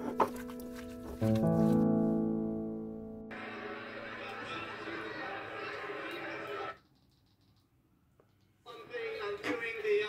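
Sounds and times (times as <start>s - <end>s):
keyboard chords: 0.0s - 6.1s.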